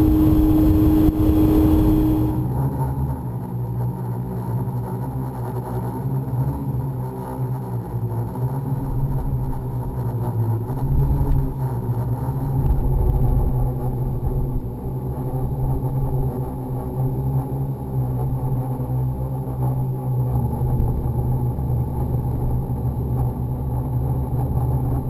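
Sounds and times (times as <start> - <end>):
model aircraft motors humming: 0.0 - 2.6.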